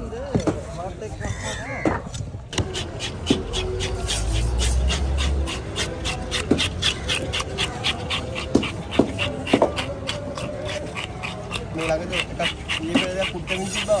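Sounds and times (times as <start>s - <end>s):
dog panting: 3.2s - 14.0s.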